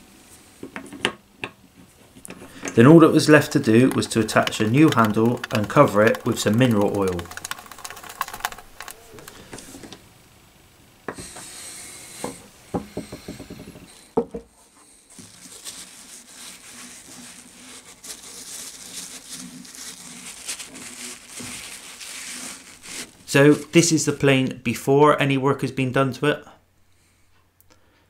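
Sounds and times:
paper towel rubbing wood: 0:02.8 - 0:09.8, 0:14.7 - 0:24.1.

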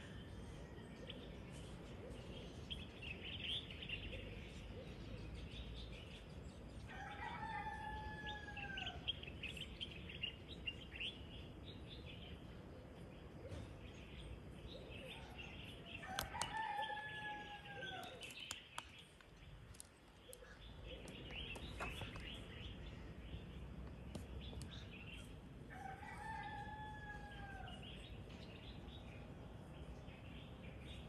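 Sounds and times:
small birds chirping: 0:09.0 - 0:31.0.

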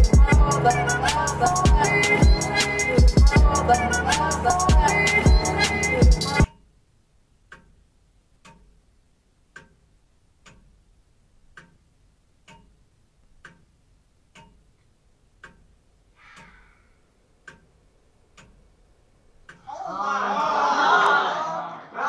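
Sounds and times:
grandfather clock ticking: 0:07.4 - 0:16.6, 0:17.4 - 0:19.6.

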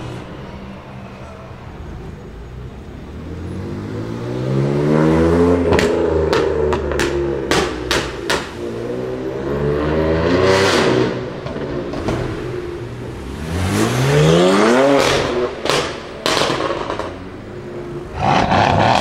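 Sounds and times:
car engine revving: 0:02.7 - 0:19.0
exhaust pops and bangs: 0:05.7 - 0:08.6, 0:11.4 - 0:12.5, 0:15.0 - 0:17.3.

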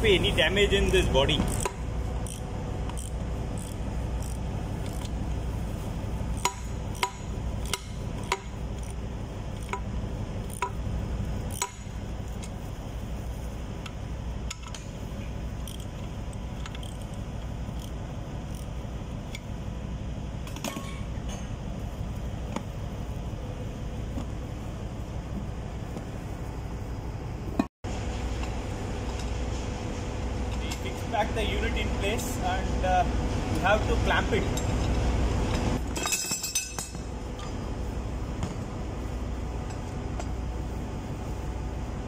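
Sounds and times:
low machinery drone: 0:00.0 - 0:42.0.

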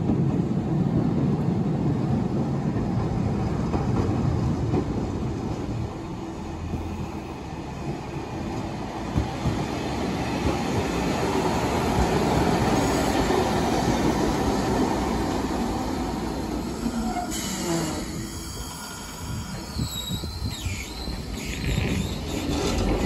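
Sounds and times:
tram motors rumbling: 0:00.0 - 0:23.0
wheel noise on rails: 0:00.0 - 0:23.0.

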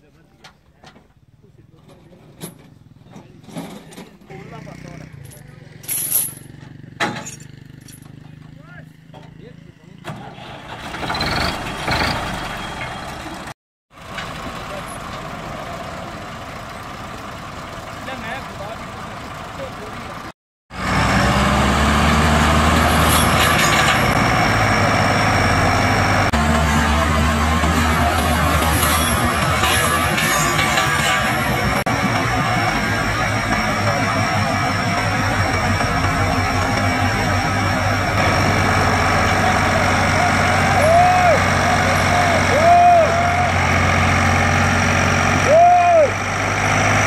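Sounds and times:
tractor diesel engine droning: 0:00.0 - 0:47.0.

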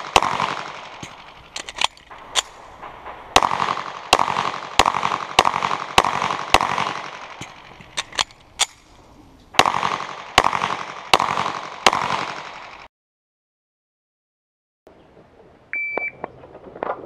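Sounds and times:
pistol shots echoing: 0:00.0 - 0:12.9.

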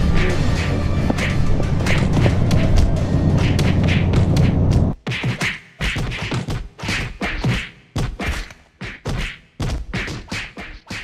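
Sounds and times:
rapid whacks and thumps: 0:00.6 - 0:11.0.

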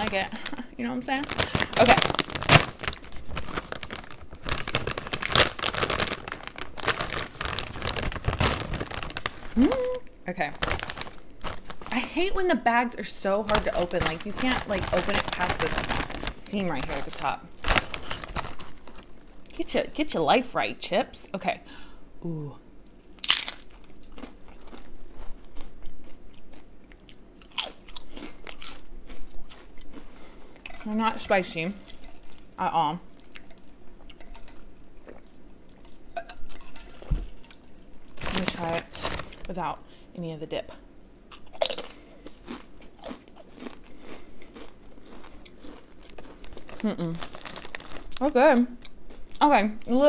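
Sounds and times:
plastic chip bag crinkling: 0:00.0 - 0:12.5, 0:13.1 - 0:20.2, 0:23.0 - 0:26.6, 0:35.8 - 0:39.8, 0:41.4 - 0:49.4.

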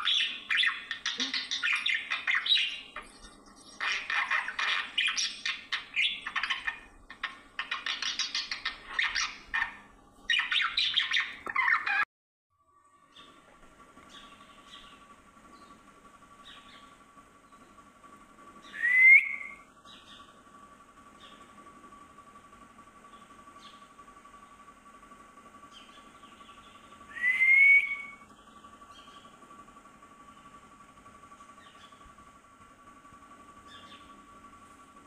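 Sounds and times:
budgerigars chattering: 0:00.0 - 0:12.0
loud rising bird chirp: 0:00.0 - 0:12.1, 0:14.1 - 0:17.9, 0:18.5 - 0:20.4, 0:25.6 - 0:29.4, 0:31.4 - 0:32.2, 0:33.6 - 0:34.5.

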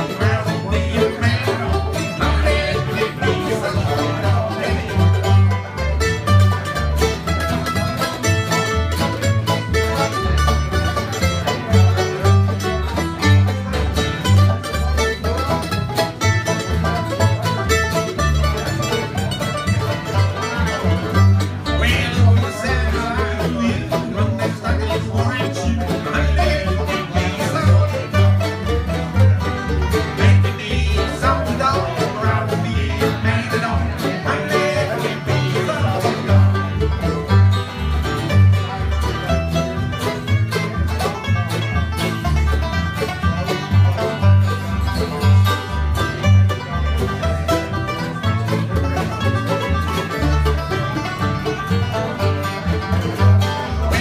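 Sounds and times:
banjo: 0:00.0 - 0:54.0
bluegrass band playing: 0:00.0 - 0:54.0
upright bass plucking low notes: 0:00.0 - 0:54.0.

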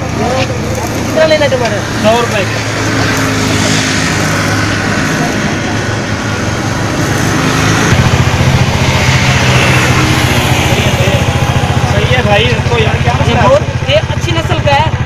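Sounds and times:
engine idling: 0:04.7 - 0:15.0.

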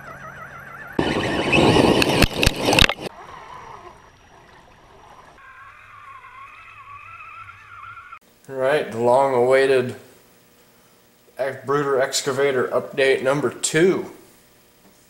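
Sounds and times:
electric motor whine: 0:00.0 - 0:08.2.

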